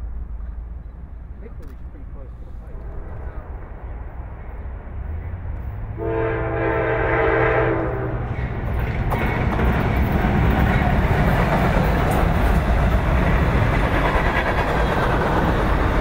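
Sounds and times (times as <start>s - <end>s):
locomotive engines rumbling: 0.0s - 16.0s
train air horn: 6.0s - 8.3s.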